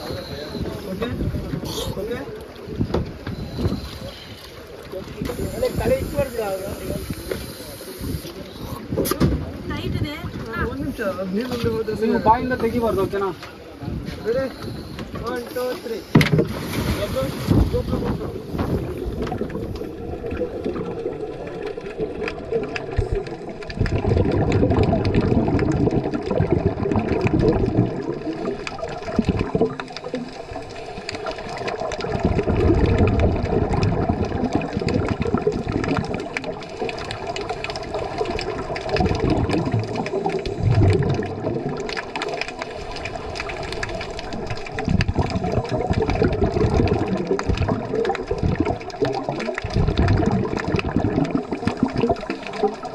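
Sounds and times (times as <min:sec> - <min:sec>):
underwater regulator breathing: 0:00.0 - 0:02.1, 0:03.2 - 0:09.2, 0:14.0 - 0:20.8
exhaled bubbles: 0:00.0 - 0:52.9.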